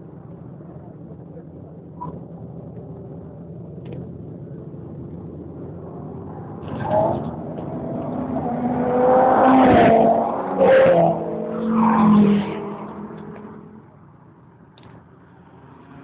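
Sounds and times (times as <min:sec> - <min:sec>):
car engine at high revs: 0:03.8 - 0:14.0.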